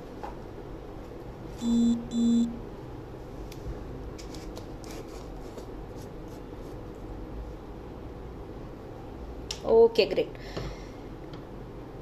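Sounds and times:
low steady hum: 0.0s - 4.4s
short electronic beeps: 1.6s - 2.6s.

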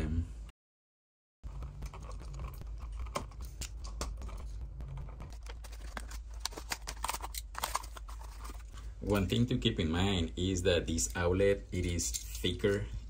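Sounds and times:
clicks and scrapes of wiring: 1.5s - 9.4s, 11.0s - 12.8s
low steady hum: 1.5s - 13.0s.

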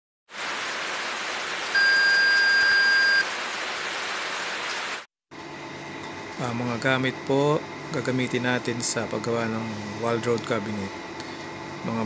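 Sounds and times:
high-pitched test-tone beep: 1.8s - 3.2s.

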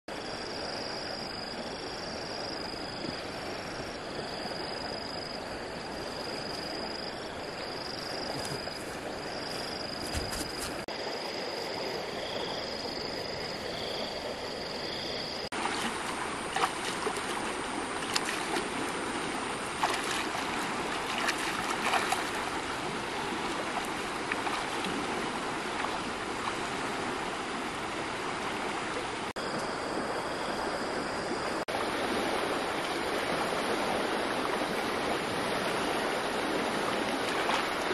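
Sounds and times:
river water flowing: 0.2s - 37.9s.

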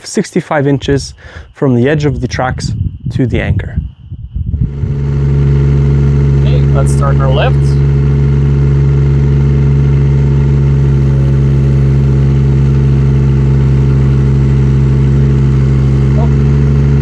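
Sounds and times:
diesel engine running: 4.5s - 17.0s
hydraulics pulling: 4.6s - 17.0s.

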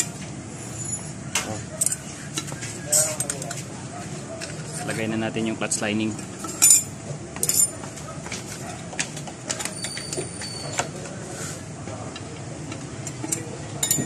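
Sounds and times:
metallic clicks of clutch plates: 12.1s - 14.0s.

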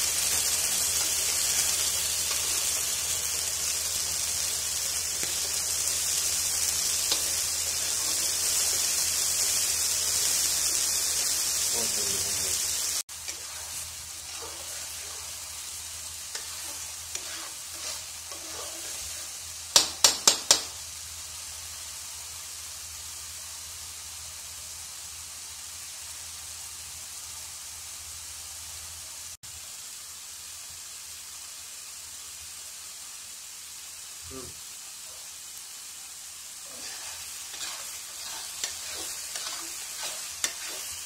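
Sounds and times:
spice paste sizzling: 0.0s - 41.0s
metal spatula scraping pan: 13.3s - 15.4s, 16.3s - 19.4s, 36.7s - 41.0s.

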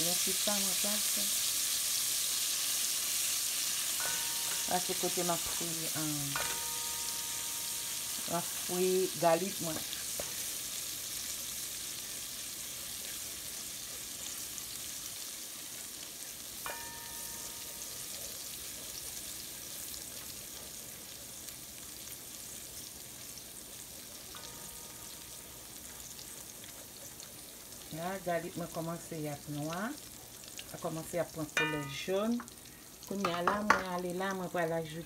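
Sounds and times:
garlic sizzling in hot oil: 0.0s - 35.0s
short ringing tones: 3.9s - 9.3s.

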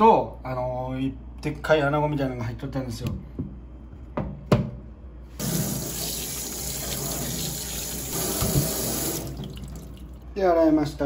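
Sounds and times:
tap running into steel sink: 8.2s - 9.6s.

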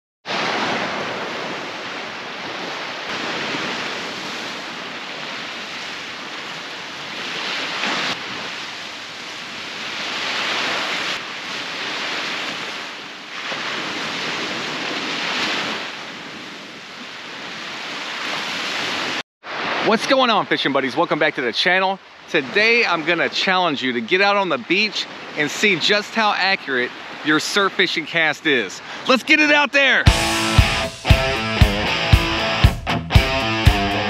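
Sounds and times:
ocean waves breaking on beach: 0.2s - 30.8s.

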